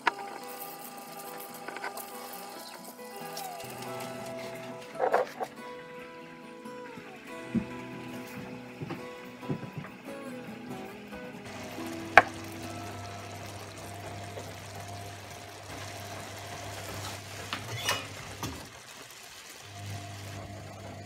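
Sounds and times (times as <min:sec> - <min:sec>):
kitchen cooking sounds: 0:00.0 - 0:21.0.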